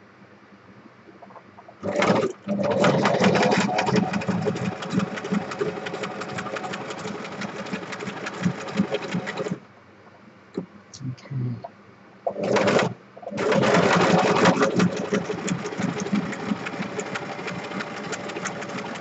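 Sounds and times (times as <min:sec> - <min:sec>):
sewing machine stitching: 0:01.8 - 0:09.6, 0:12.3 - 0:19.0.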